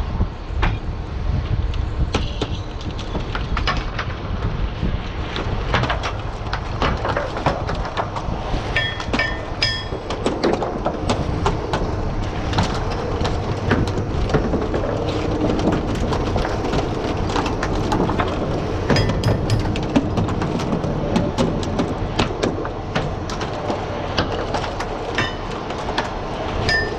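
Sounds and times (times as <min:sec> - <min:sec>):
oyster shells clattering on board: 0:18.9 - 0:20.3.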